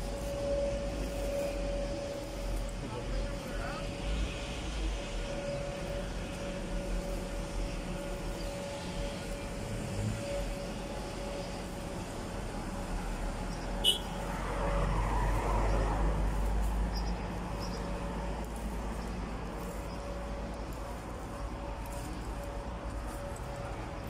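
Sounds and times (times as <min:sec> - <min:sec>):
street traffic hum: 0:00.0 - 0:24.0
vehicle passing: 0:08.0 - 0:24.0.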